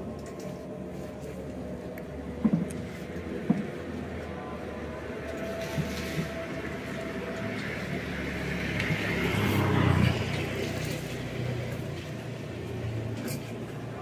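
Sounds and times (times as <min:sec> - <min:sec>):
street traffic: 0:00.0 - 0:14.0
vehicle passing close: 0:07.9 - 0:13.2.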